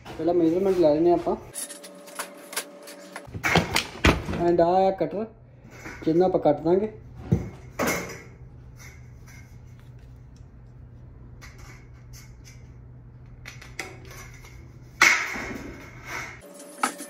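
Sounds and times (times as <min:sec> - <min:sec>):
low steady hum: 0:04.2 - 0:15.9.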